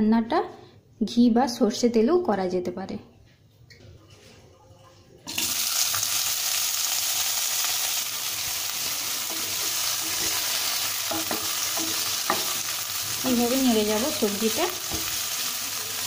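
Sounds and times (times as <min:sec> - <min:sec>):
vegetables sizzling in hot fat: 0:05.3 - 0:16.0
wooden spatula stirring: 0:08.8 - 0:15.2.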